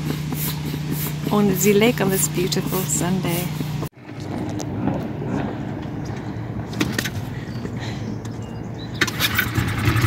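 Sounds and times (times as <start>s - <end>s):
outboard motor starting: 0.0s - 3.9s, 9.0s - 10.0s.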